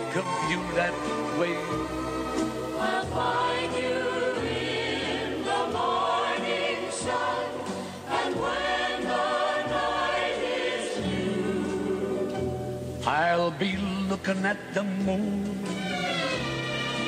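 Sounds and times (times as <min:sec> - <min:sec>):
choir singing with accompaniment: 0:00.5 - 0:13.5.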